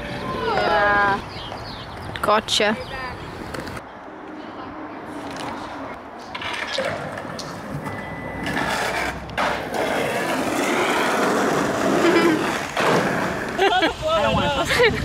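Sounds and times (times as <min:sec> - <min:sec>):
skateboard wheels rolling on asphalt: 0:05.1 - 0:15.0.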